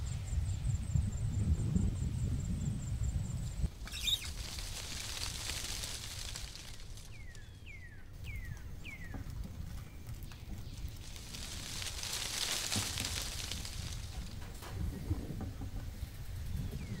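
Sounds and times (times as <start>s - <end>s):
bird whistling: 3.8s - 4.4s
aluminium foil crinkling: 3.9s - 7.7s, 10.2s - 14.8s.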